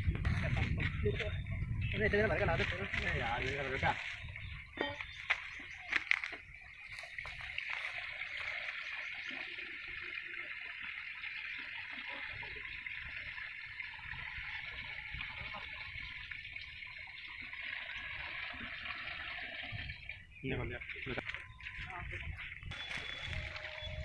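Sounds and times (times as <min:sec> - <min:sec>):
water pouring into pipe: 0:06.0 - 0:24.0.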